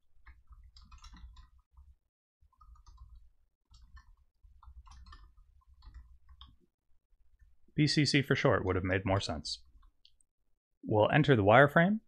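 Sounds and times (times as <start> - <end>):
computer keyboard typing: 0.2 - 1.9, 2.5 - 6.7.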